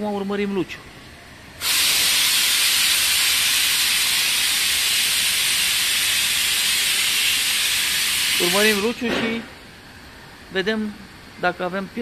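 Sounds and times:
sprayer hissing: 0:01.6 - 0:09.0.

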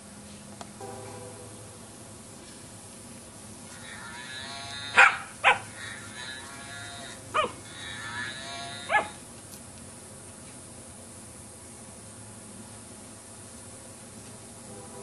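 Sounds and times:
toy cow mooing: 0:03.7 - 0:09.2
puppy barking: 0:04.9 - 0:05.8, 0:07.3 - 0:07.6, 0:08.8 - 0:09.2.

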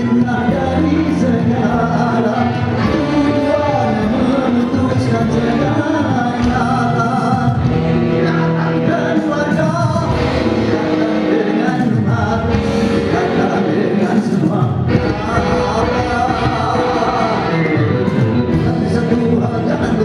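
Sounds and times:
electric guitar: 0:00.0 - 0:20.0
live band playing: 0:00.0 - 0:20.0
man singing: 0:00.0 - 0:20.0.

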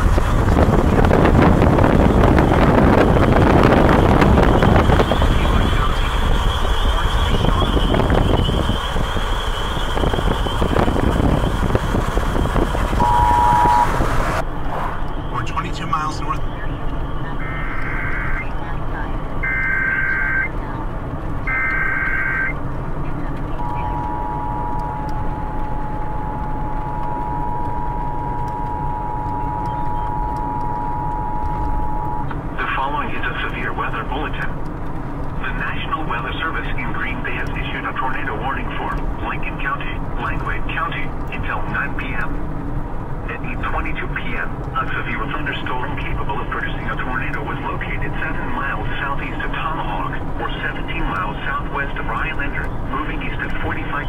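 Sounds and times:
wind buffeting microphone: 0:00.0 - 0:15.4
car road and wind noise: 0:00.0 - 0:54.0
two-pitch electronic tone: 0:13.0 - 0:14.3, 0:23.6 - 0:32.3.

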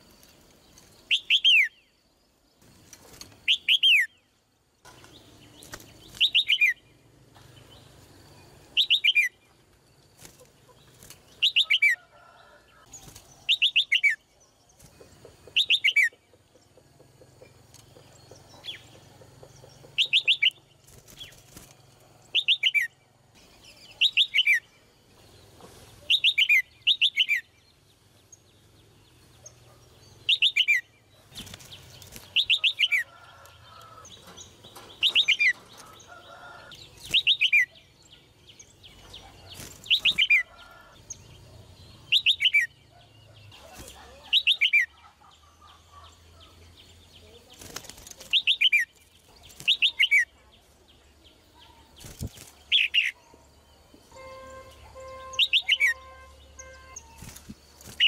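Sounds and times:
bulbul calling: 0:05.7 - 0:07.0, 0:15.0 - 0:21.4, 0:22.3 - 0:24.7, 0:29.4 - 0:40.9, 0:41.9 - 0:46.6, 0:52.7 - 0:53.4, 0:54.0 - 0:58.0.

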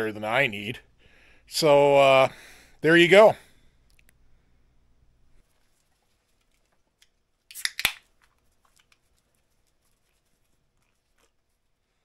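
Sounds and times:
faint small clicks: 0:03.8 - 0:04.2
beer can cracked open: 0:07.5 - 0:08.3.

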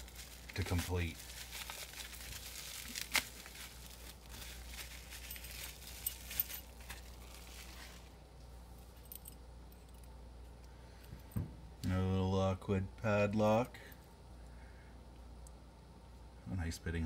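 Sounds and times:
bubble wrap crinkling: 0:00.0 - 0:08.2.

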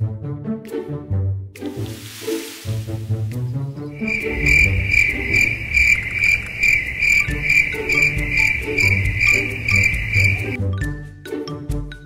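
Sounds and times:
background music: 0:00.0 - 0:12.0
high pulsing chirping: 0:04.0 - 0:10.6.

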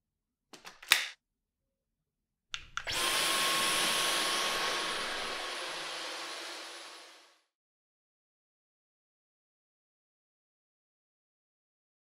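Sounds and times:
vacuum motor rushing and whining: 0:02.6 - 0:07.4.

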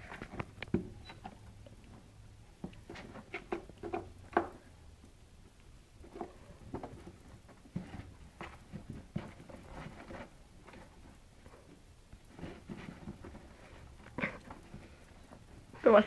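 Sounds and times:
cats scratching cardboard box: 0:02.7 - 0:04.7, 0:06.0 - 0:15.8.

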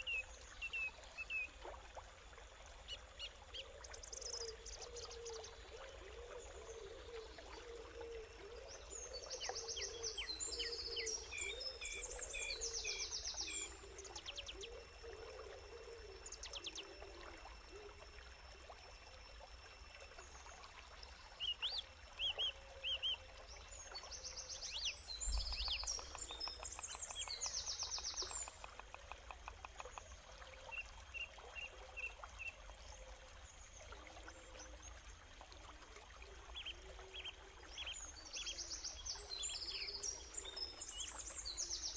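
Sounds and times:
birds chirping and trilling: 0:23.9 - 0:29.1.

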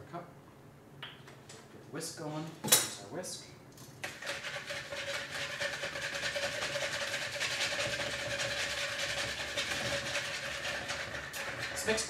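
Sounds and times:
whisk clattering against bowl: 0:04.0 - 0:12.0.

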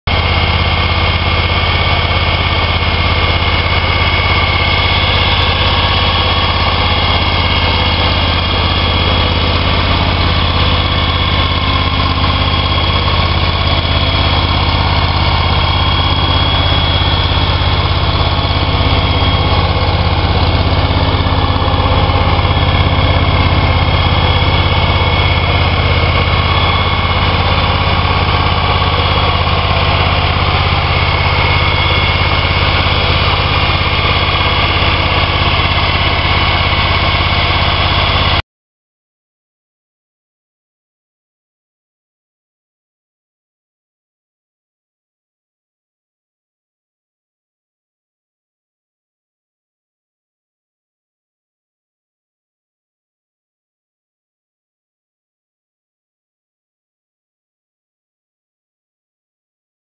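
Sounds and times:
mower engine idling: 0:00.1 - 0:38.4.

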